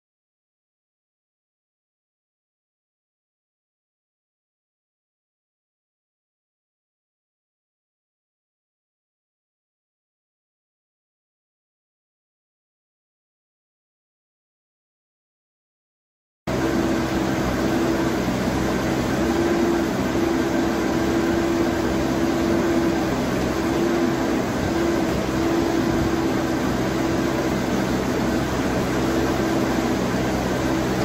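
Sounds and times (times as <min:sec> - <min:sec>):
diesel engine running under load: 0:16.5 - 0:31.0
high hydraulic whine: 0:16.5 - 0:31.0.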